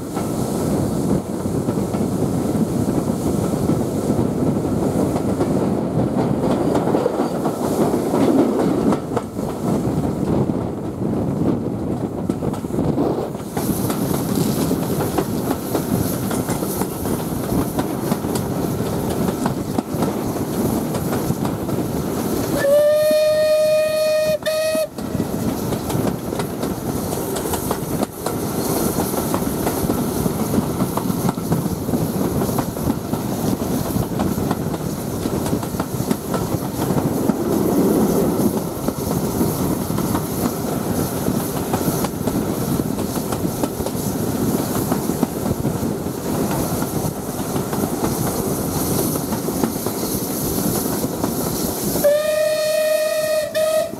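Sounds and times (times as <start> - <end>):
train running: 0.0 - 53.9
wheels clicking over rail joints: 11.9 - 53.9
steam whistle blast: 22.6 - 25.0, 52.0 - 53.9.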